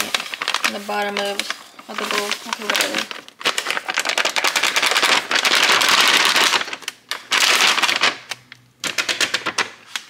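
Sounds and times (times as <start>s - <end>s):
paper pouch crinkling: 0.0s - 10.0s.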